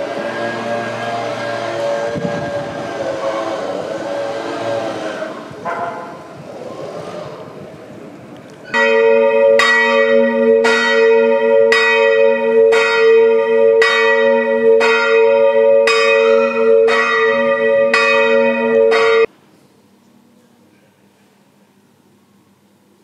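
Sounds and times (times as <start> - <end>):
church bell tolling: 8.7 - 19.3.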